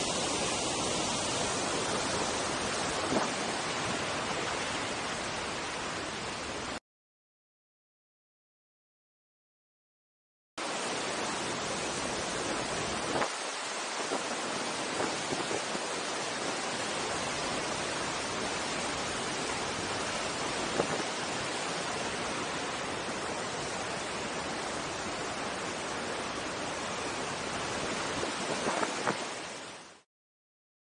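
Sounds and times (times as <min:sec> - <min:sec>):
waterfall roaring: 0:00.0 - 0:06.8, 0:10.6 - 0:30.0.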